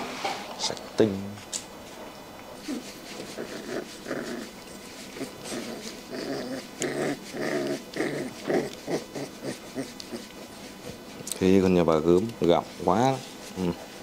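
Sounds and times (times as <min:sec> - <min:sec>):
puppies growling: 0:02.4 - 0:11.4.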